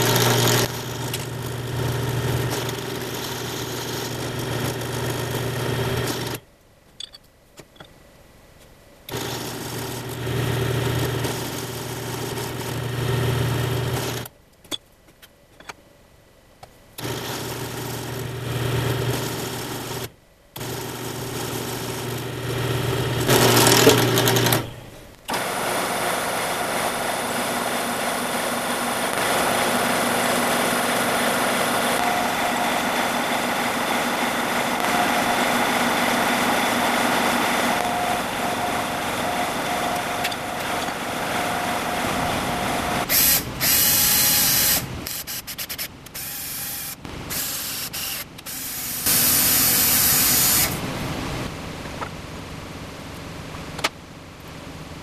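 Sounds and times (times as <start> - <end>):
drill press motor running: 0.0 - 6.4, 9.1 - 14.3, 17.0 - 51.5
cordless drill drilling into aluminium: 17.0 - 24.7, 25.3 - 50.8.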